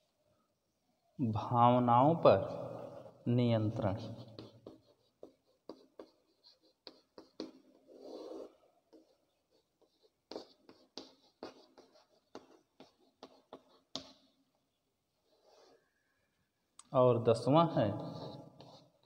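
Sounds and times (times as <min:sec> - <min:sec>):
chalk tapping and scraping on chalkboard: 0:03.8 - 0:14.4, 0:17.6 - 0:19.0.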